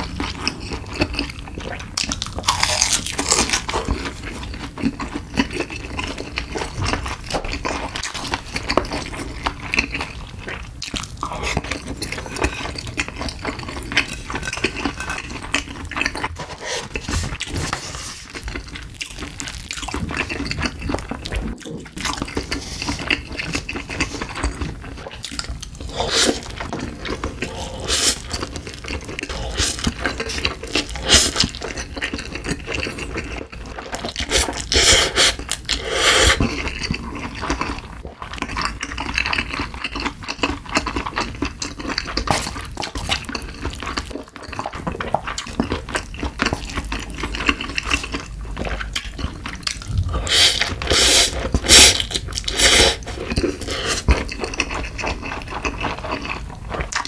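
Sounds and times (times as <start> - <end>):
wet chewing: 0.0 - 57.0
slurping noodles: 11.2 - 18.4, 25.8 - 31.6, 32.8 - 37.5, 49.7 - 56.7
sipping liquid: 49.9 - 54.0.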